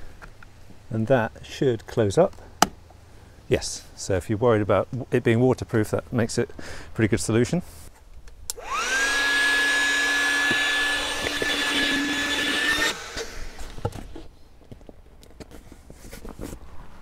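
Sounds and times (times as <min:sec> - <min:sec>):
electric air pump whining: 0:08.5 - 0:14.2.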